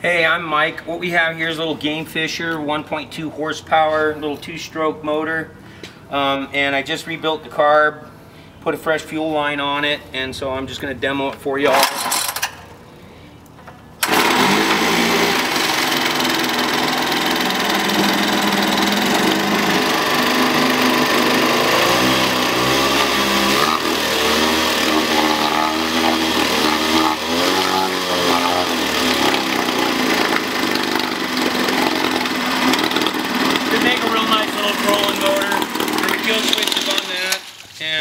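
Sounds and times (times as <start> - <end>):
outboard motor running: 14.0 - 37.5
propeller churning water: 14.0 - 37.5.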